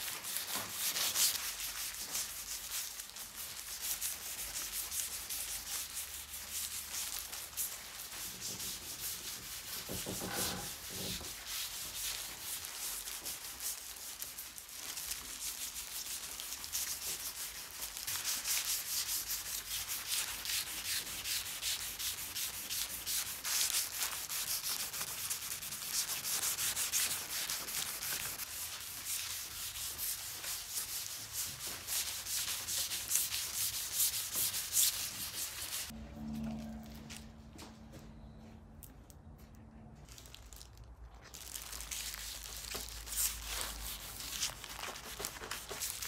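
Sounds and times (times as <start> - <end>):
gloved hand rubbing wood: 18.2 - 35.9.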